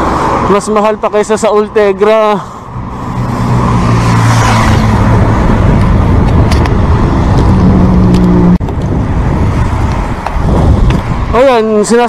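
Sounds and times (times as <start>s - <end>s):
passing motor vehicle hum: 0.0s - 11.4s
wind rushing over microphone: 2.7s - 12.0s.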